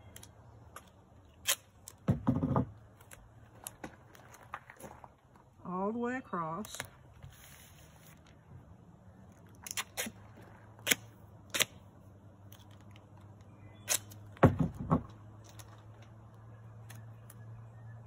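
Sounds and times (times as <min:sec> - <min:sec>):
tape snaps and clicks: 0:00.0 - 0:02.0, 0:09.3 - 0:10.2, 0:10.8 - 0:14.4, 0:15.4 - 0:17.5
duct tape ripping: 0:01.3 - 0:02.0, 0:09.5 - 0:11.9, 0:13.8 - 0:14.4.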